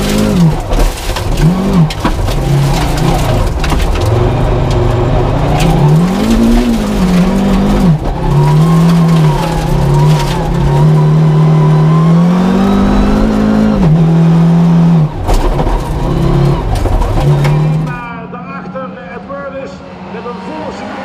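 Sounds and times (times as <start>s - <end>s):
car sliding on loose gravel: 0.0s - 12.1s, 15.1s - 18.1s
rally car engine revving: 0.0s - 18.8s.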